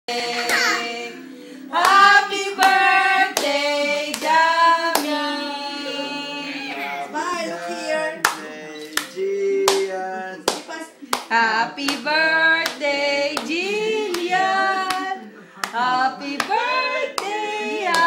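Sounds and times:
voices singing together: 0:00.1 - 0:18.0
hand claps keeping time: 0:01.8 - 0:02.8, 0:09.0 - 0:09.9.

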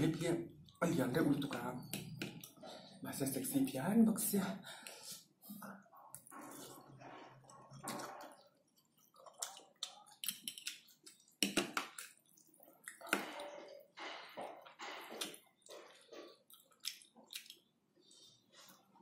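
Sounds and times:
slurping and chewing noodles: 0:04.9 - 0:19.0.

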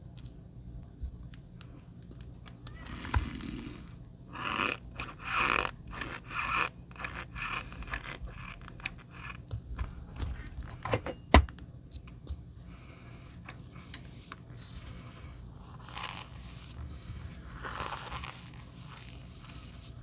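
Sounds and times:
cornstarch crunching and squeaking: 0:02.7 - 0:09.4, 0:15.7 - 0:16.8, 0:17.4 - 0:20.0.

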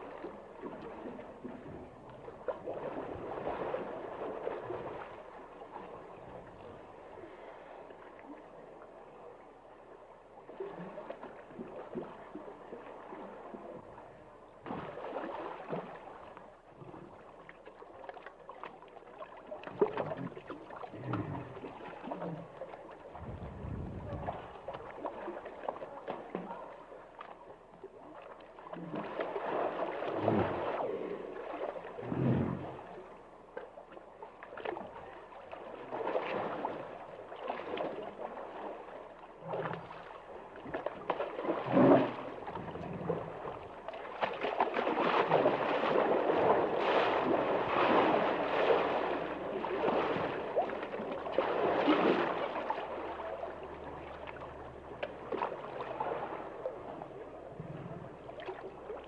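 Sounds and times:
water sloshing and gurgling: 0:00.0 - 0:59.0.

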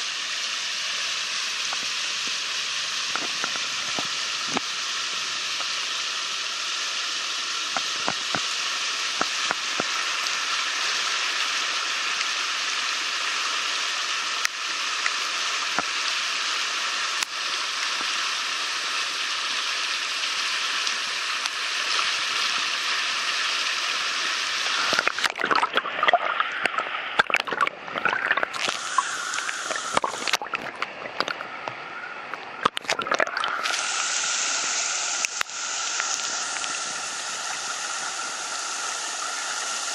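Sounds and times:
floodwater rushing: 0:24.6 - 0:39.9
bumps and splashes: 0:24.7 - 0:33.8.

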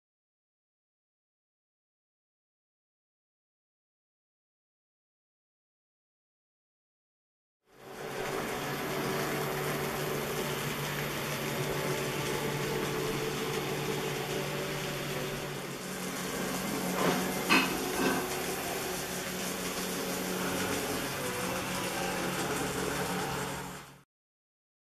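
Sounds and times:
model train whirring hum: 0:07.7 - 0:24.0.

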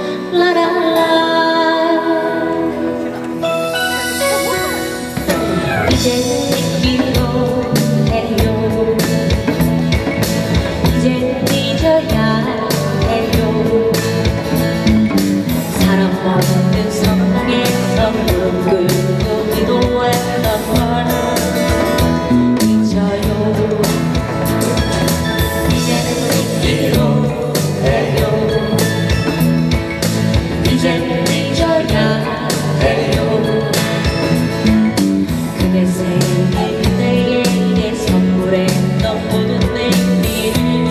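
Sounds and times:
electric guitar: 0:00.0 - 0:40.9
person singing: 0:03.9 - 0:09.2, 0:25.7 - 0:29.1, 0:30.7 - 0:34.3, 0:35.6 - 0:40.9
strummed acoustic guitars: 0:13.3 - 0:38.8.

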